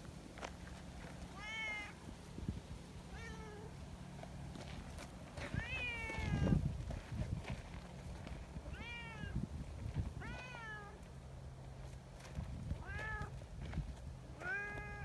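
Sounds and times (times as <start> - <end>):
cat meowing: 1.3 - 2.0, 3.1 - 3.7, 5.5 - 6.6, 8.7 - 9.4, 10.2 - 11.0, 12.8 - 13.4, 14.4 - 15.0.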